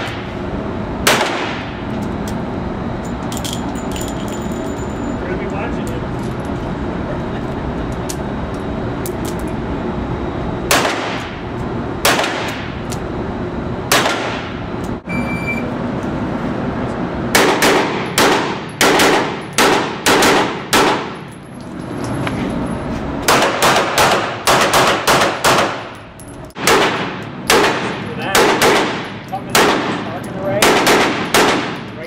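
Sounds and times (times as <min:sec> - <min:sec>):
pistol shots ringing indoors: 0:01.0 - 0:01.8, 0:10.7 - 0:11.3, 0:13.9 - 0:14.5, 0:17.3 - 0:21.2, 0:23.3 - 0:25.9, 0:26.5 - 0:30.0, 0:30.6 - 0:31.8.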